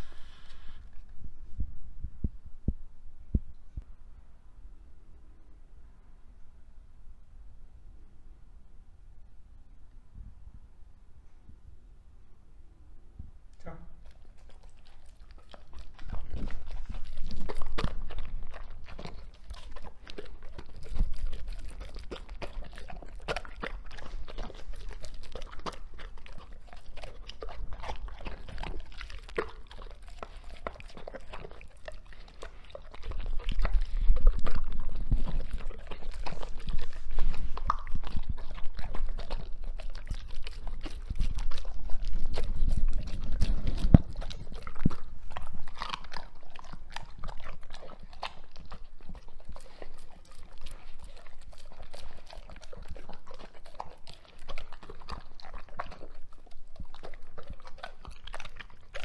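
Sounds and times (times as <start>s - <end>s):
dog chewing and crunching food: 0.0s - 1.5s, 13.9s - 59.0s.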